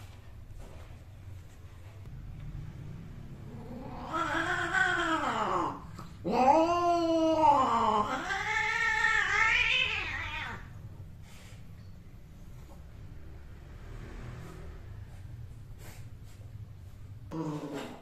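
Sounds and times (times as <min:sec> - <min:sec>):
cat yowling: 0:03.5 - 0:10.8.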